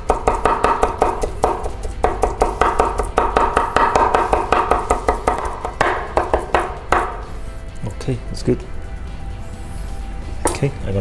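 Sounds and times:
knife chopping on wooden board: 0.0s - 7.3s.

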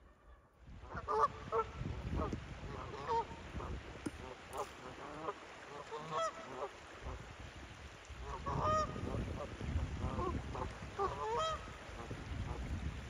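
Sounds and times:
geese honking: 0.0s - 1.7s, 4.2s - 6.7s, 10.1s - 11.7s.

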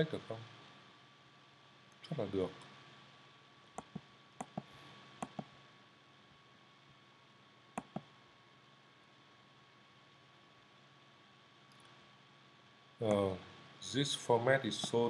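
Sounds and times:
faint steady hum: 0.0s - 15.0s
computer mouse button clicks: 3.8s - 5.5s, 7.8s - 8.1s.

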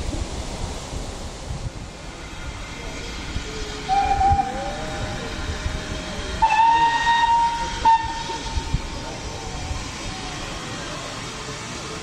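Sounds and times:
steam locomotive whistle blasts: 3.9s - 4.6s, 6.4s - 8.7s.

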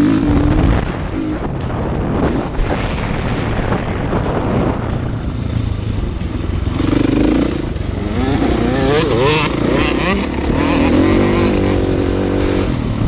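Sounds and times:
motocross engine revving: 0.0s - 1.5s, 4.7s - 13.0s
wind rushing on microphone: 0.0s - 6.9s.

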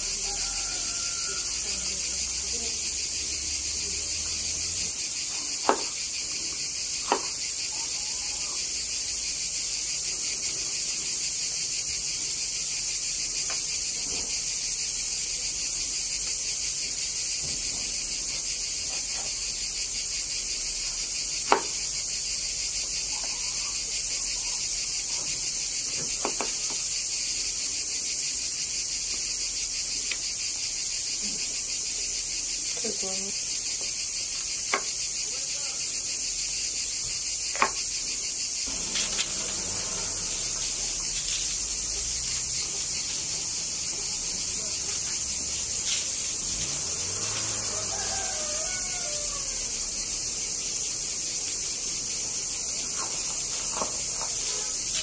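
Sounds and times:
crickets chirping: 0.0s - 55.0s
knife chopping on wooden board: 5.6s - 5.9s, 7.1s - 7.3s.

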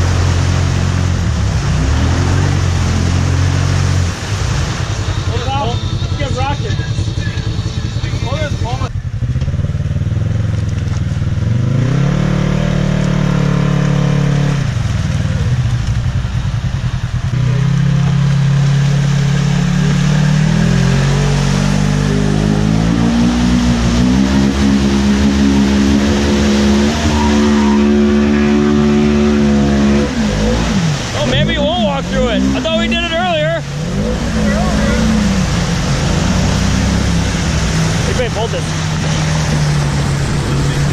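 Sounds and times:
engine revving hard: 0.0s - 9.9s, 11.4s - 14.8s, 17.4s - 40.9s.

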